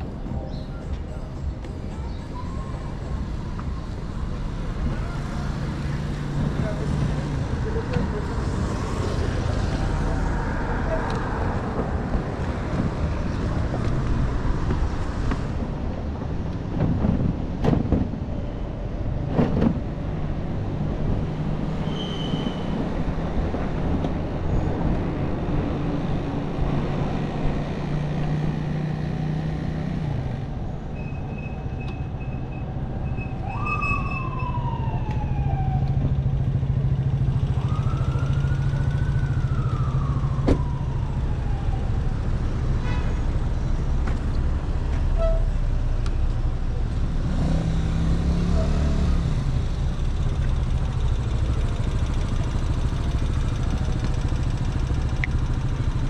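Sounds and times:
street traffic: 0.0s - 56.0s
siren wailing: 32.5s - 36.8s, 37.4s - 42.2s.

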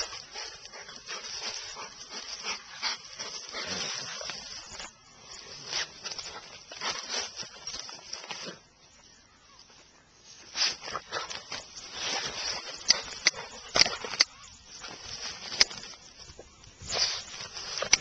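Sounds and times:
dog scratching at ground: 0.0s - 8.6s, 10.4s - 16.2s, 16.8s - 18.0s.

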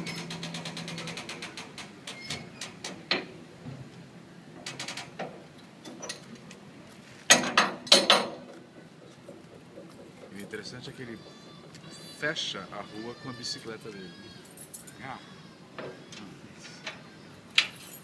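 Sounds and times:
metal clanking: 7.3s - 11.4s.

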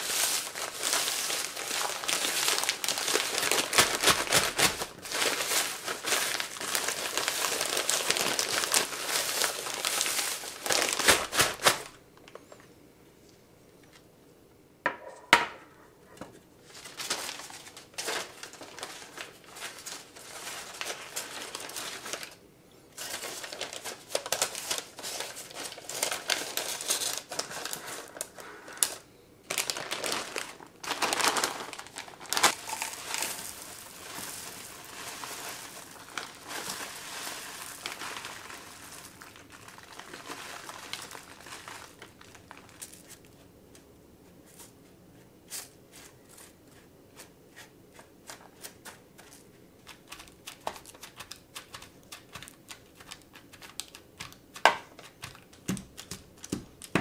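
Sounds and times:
parchment paper crinkling: 0.0s - 12.4s, 16.6s - 57.0s.

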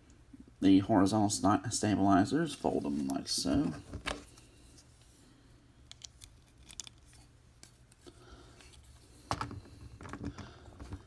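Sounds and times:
plastic toy parts clicking: 5.8s - 7.2s.

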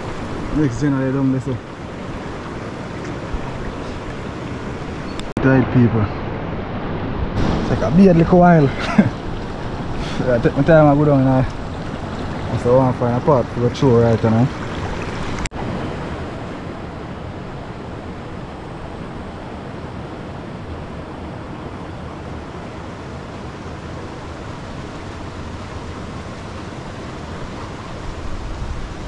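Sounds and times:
river flowing over rocks: 6.5s - 29.0s.

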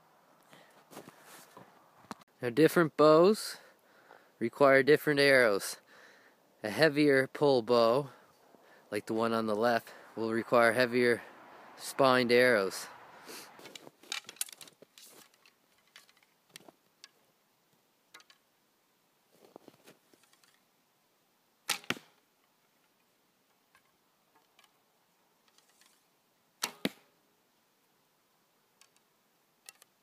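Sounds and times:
bow string snapping: 26.6s - 27.1s.

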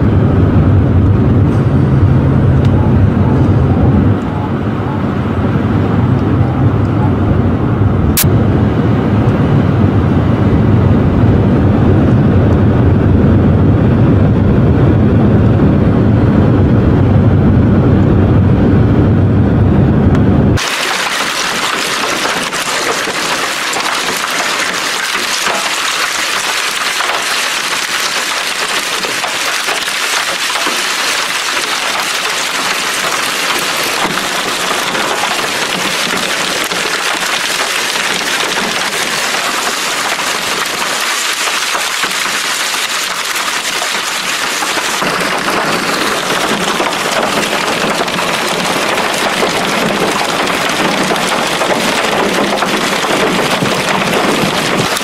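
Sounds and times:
hail and rain pelting down: 20.6s - 55.0s.

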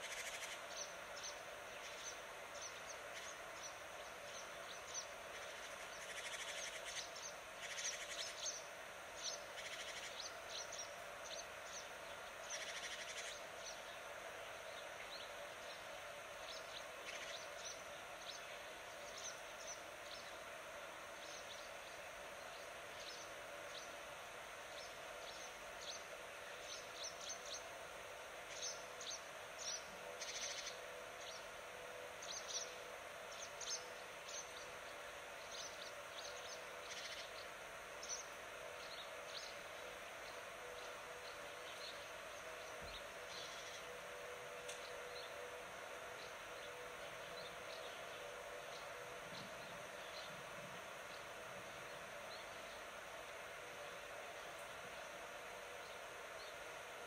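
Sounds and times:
outdoor background noise: 0.0s - 57.0s
small birds chirping: 0.0s - 57.0s.

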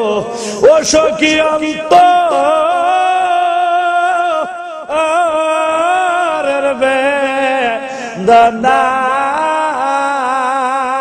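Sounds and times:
man singing through microphones: 0.0s - 11.0s.

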